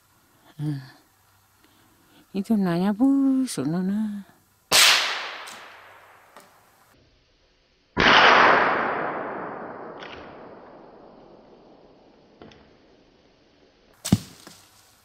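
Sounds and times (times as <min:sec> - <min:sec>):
gunshots echoing: 0:04.7 - 0:06.1, 0:08.0 - 0:11.4.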